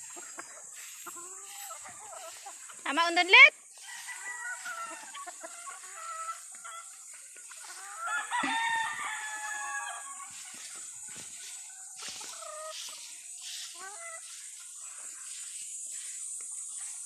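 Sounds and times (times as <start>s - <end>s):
chickens clucking: 0.0s - 17.0s
rooster crowing: 3.7s - 6.4s, 7.7s - 10.4s.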